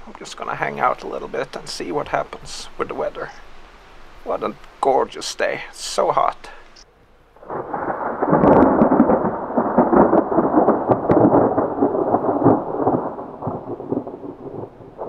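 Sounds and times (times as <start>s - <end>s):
thunderclap rumbling: 7.4s - 15.0s.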